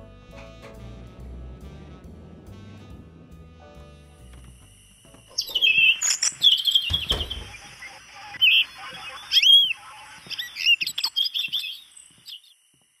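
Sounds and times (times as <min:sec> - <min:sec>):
recorded birdsong chirps: 0:05.1 - 0:13.0
thump: 0:06.9 - 0:07.5.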